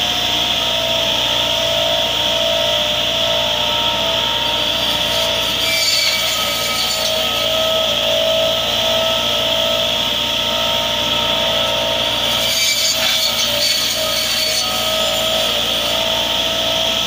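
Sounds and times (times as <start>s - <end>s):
saw blades cutting branches: 0.0s - 17.0s
tractor diesel engine running: 8.0s - 12.3s.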